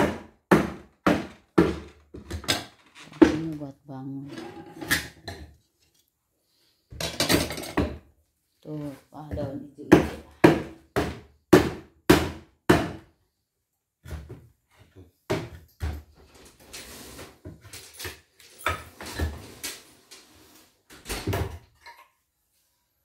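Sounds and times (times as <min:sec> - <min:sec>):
hammer striking wooden crate: 0:00.0 - 0:01.9, 0:09.9 - 0:13.0.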